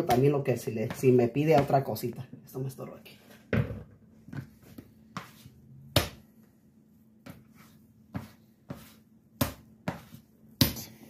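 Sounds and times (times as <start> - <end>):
dough slapping on wooden board: 0.0 - 2.0, 4.2 - 6.4, 7.2 - 11.0.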